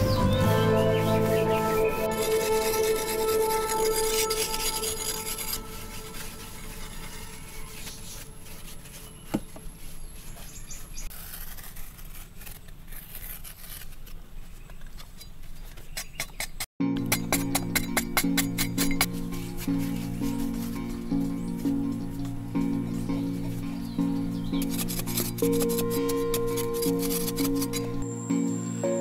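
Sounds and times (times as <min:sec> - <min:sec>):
background music: 0:00.0 - 0:08.3, 0:16.8 - 0:29.0
metal scraper rasping over clay: 0:01.1 - 0:21.1, 0:24.3 - 0:28.0.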